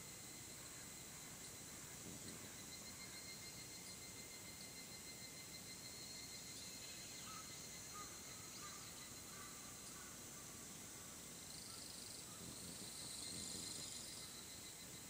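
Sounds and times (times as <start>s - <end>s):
high insect drone: 0.0s - 15.0s
pulsing insect trill: 0.0s - 15.0s
faint bird calls: 6.7s - 14.4s.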